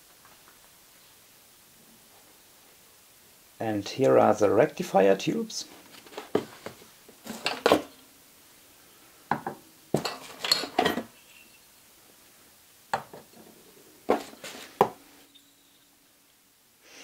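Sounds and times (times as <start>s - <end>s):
porcelain and glass clinking: 7.3s - 7.9s, 9.3s - 11.7s.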